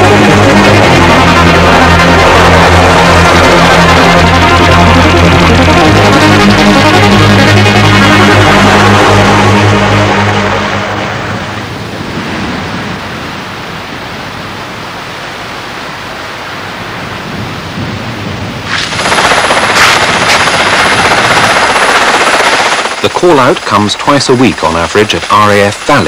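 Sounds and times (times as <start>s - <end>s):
music: 0.0s - 11.6s
helicopter rotor and turbine: 0.0s - 13.7s, 17.6s - 26.0s
steady rushing noise: 0.0s - 26.0s.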